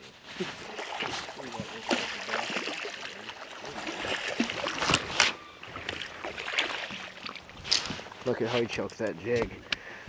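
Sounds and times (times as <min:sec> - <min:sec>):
fish splashing at water surface: 0:00.6 - 0:07.5.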